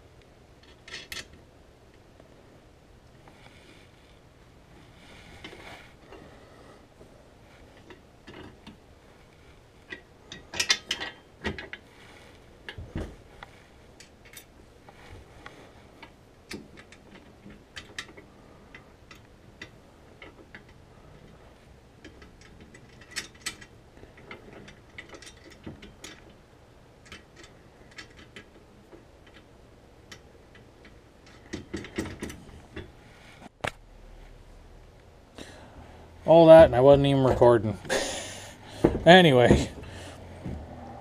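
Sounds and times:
metal clinks and knocks: 9.9s - 11.8s, 22.0s - 26.4s.

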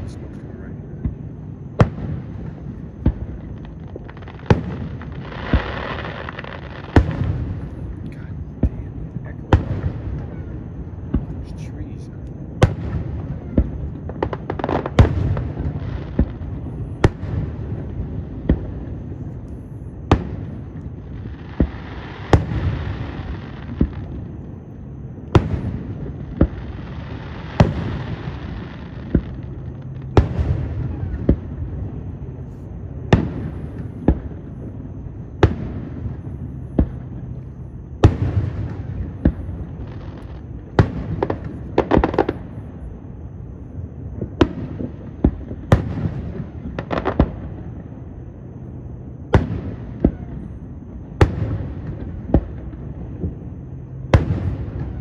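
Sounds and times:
firework crackling hiss: 0.0s - 34.8s
firework bangs: 0.0s - 48.2s, 48.9s - 55.0s.

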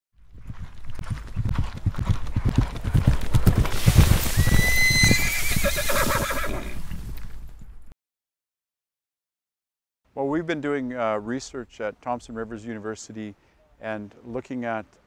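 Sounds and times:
horse hoofbeats galloping: 0.2s - 5.9s
horse neighing: 4.3s - 6.8s.

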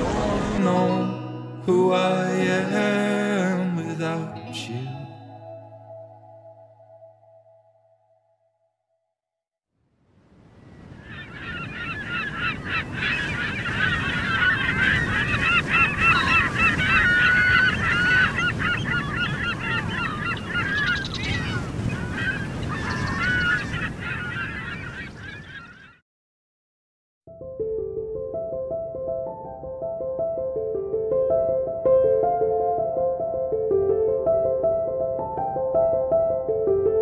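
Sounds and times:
birds chirping and squeaking: 10.8s - 26.0s.

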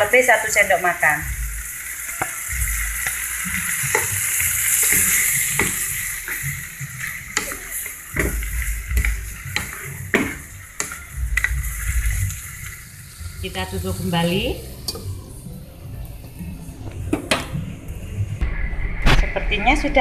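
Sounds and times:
vegetables sizzling in a frying pan: 0.0s - 16.4s
spatula scraping and knocking pan: 2.1s - 14.0s.

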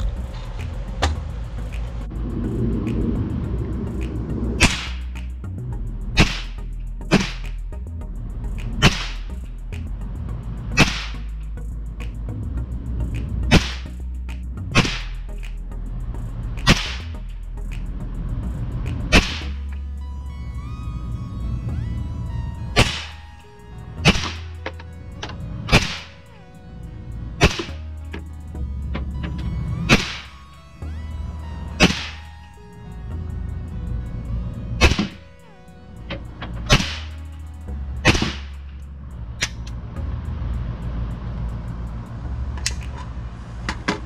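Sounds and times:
steady low rumble: 0.0s - 44.0s.

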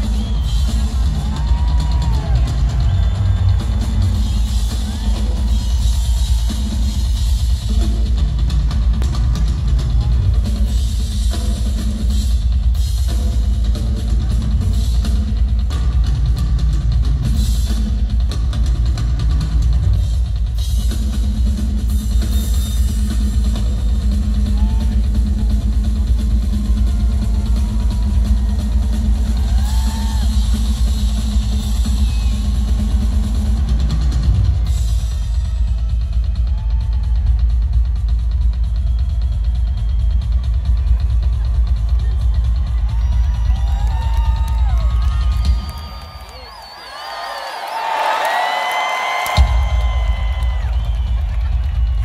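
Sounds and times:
rock drum kit through pa: 0.0s - 46.0s, 48.3s - 52.0s
heavy kick drum: 49.4s - 52.0s.

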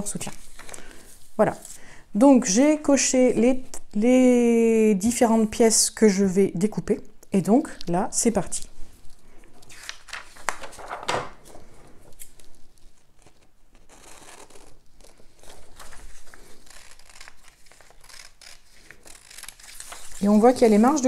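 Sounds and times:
paper rustling and crinkling: 8.9s - 21.0s
scissors snipping paper: 16.6s - 20.9s.

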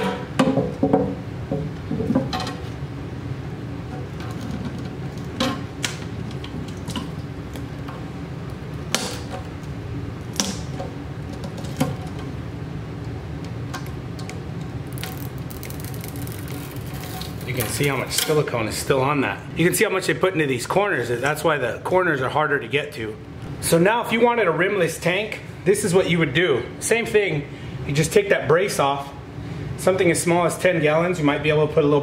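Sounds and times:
plastic rim cracking and snapping: 13.8s - 18.3s.

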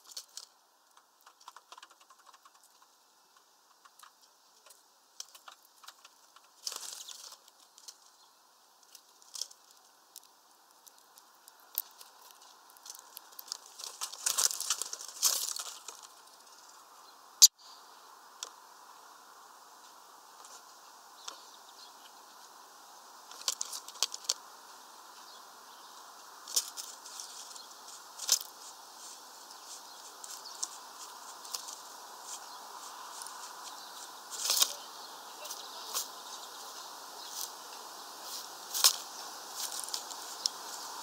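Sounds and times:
faint hiss: 0.0s - 41.0s
woodpecker tapping on plastic tray: 0.9s - 6.6s.

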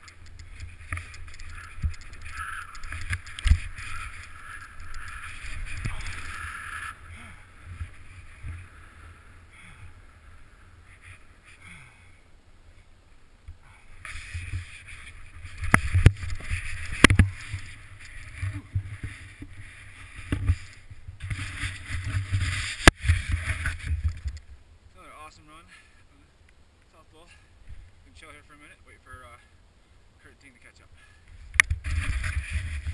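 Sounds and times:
skis hissing through powder snow: 21.3s - 23.8s
wind rumble on microphone: 31.5s - 32.9s.

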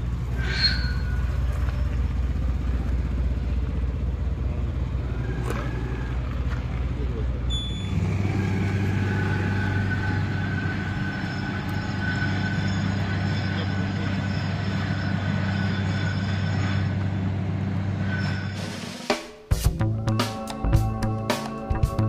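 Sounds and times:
vehicle engine hum and road noise: 0.0s - 18.5s.

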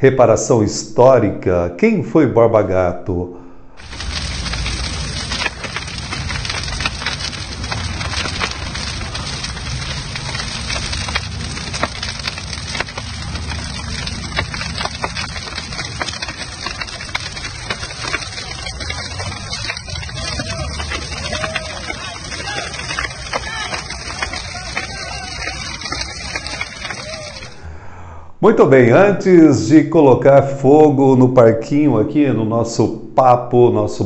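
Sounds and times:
fire cracks and pops: 3.8s - 27.6s
tyres burning with rushing fire: 3.8s - 27.7s.

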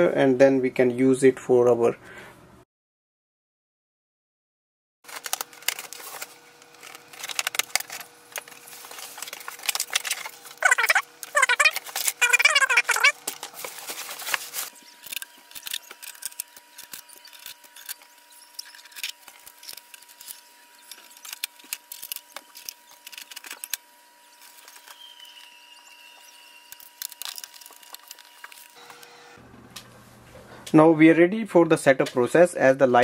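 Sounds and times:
paper and packing rustling: 5.1s - 25.4s, 26.7s - 28.9s.

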